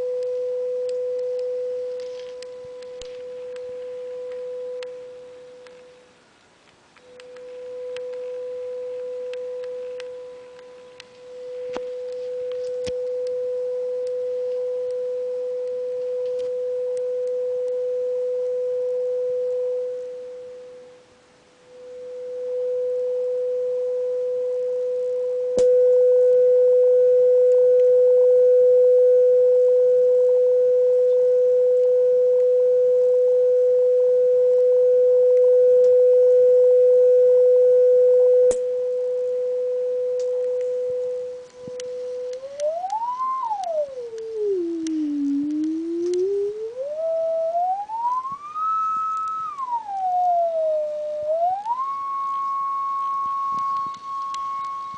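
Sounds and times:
sine-wave test tone: 0.0 - 54.9.

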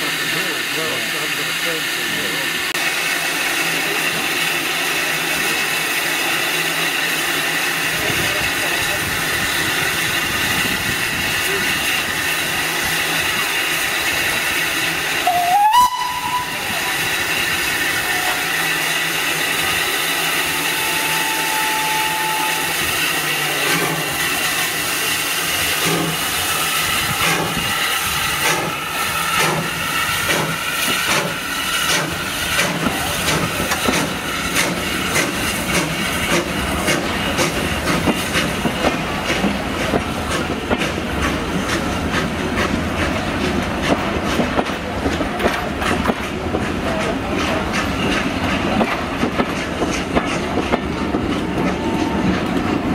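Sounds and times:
steam locomotive hissing: 0.0 - 52.9
wheels clacking over rail joints: 29.4 - 52.9.

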